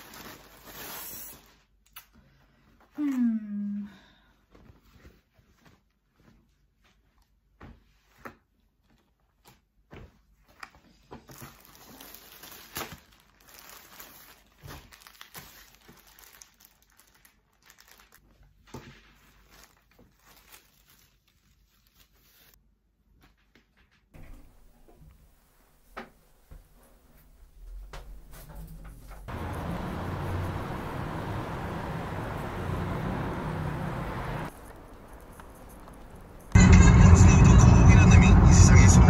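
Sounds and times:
plastic bag crinkling: 0.0s - 1.6s, 11.3s - 18.3s, 19.2s - 22.6s.

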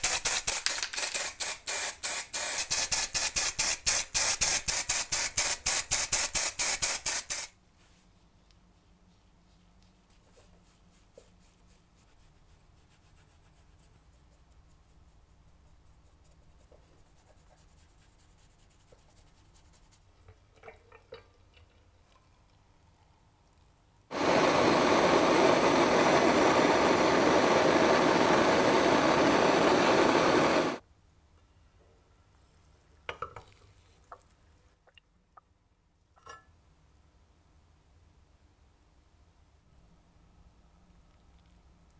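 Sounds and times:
faint brushing: 7.7s - 20.2s
blowtorch hissing: 24.1s - 30.8s.

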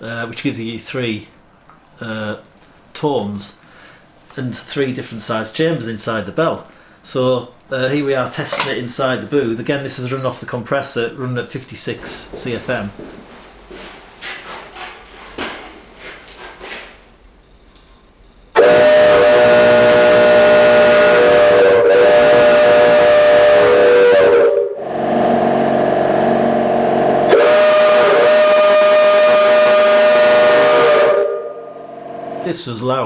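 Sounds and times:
steam whistle chord: 18.6s - 32.5s.

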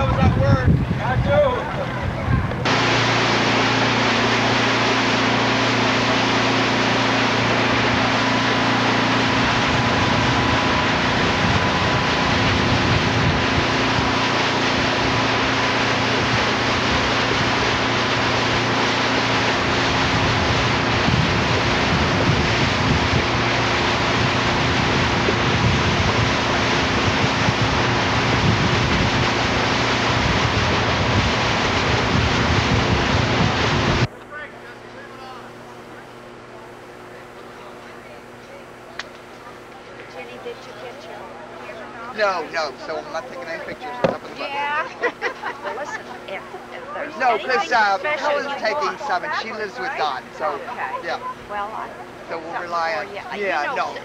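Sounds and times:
wind buffeting microphone: 0.0s - 2.8s, 7.7s - 34.1s
motorboat engine drone: 0.0s - 54.0s
water rushing along hull: 0.0s - 54.0s.

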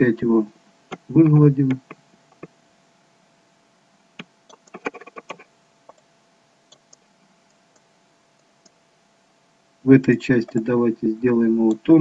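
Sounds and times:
faint steady hum: 0.0s - 12.0s
mouse and keyboard clicks: 4.2s - 6.0s.

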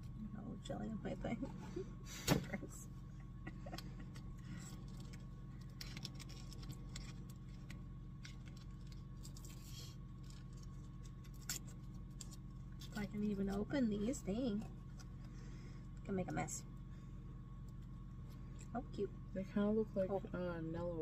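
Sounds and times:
steady low hum: 0.0s - 21.0s
plastic packaging crinkling: 4.0s - 13.1s.

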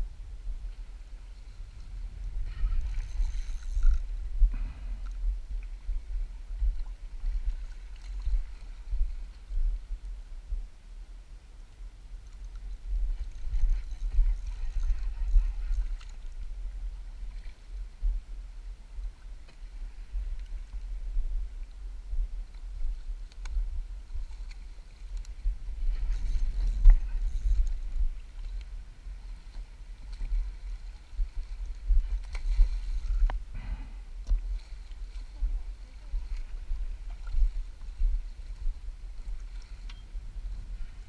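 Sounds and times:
wind buffeting microphone: 0.0s - 10.8s, 12.6s - 41.0s
faint clicks: 23.2s - 23.6s, 24.4s - 25.4s.

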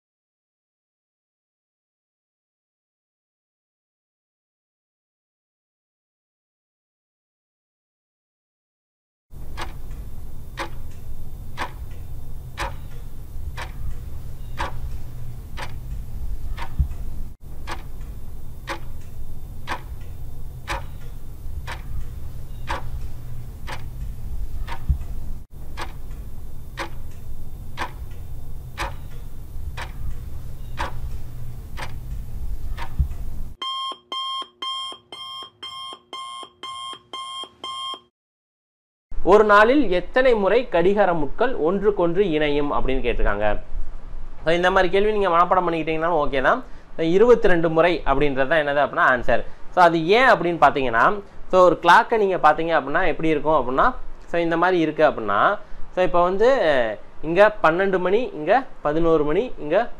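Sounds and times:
low steady hum: 9.4s - 33.6s
clock ticking: 9.4s - 37.0s
electronic alarm beeping: 9.5s - 38.1s.

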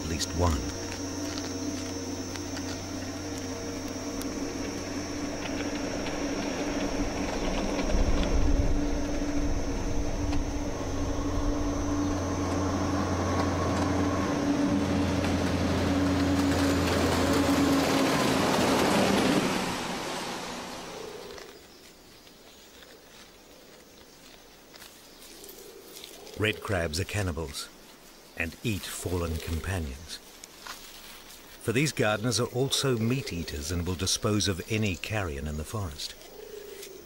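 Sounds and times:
truck engine running: 0.0s - 21.0s.

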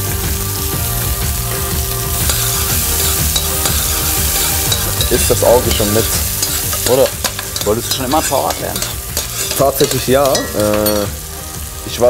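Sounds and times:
onions and meat sizzling in pan: 0.0s - 12.0s.

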